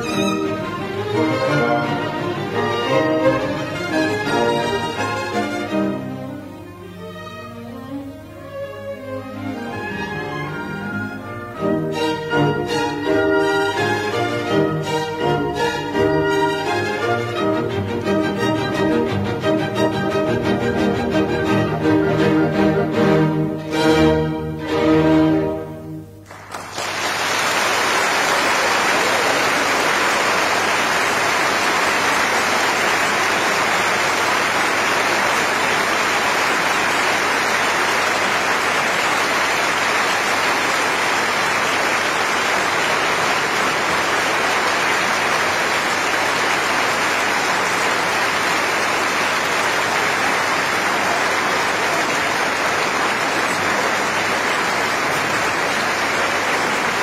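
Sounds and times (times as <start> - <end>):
audience applauding: 0.0 - 6.0, 26.2 - 57.0.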